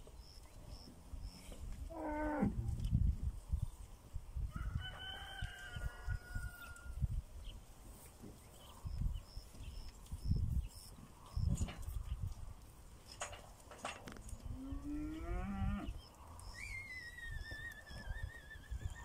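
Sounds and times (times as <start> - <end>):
rooster crowing: 4.5 - 7.0
animal call: 15.8 - 19.0.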